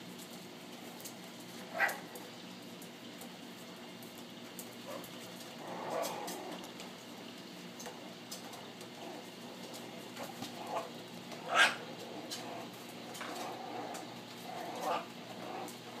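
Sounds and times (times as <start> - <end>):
dog yipping: 1.7 - 2.1, 11.4 - 11.8
dog whining: 13.3 - 15.8.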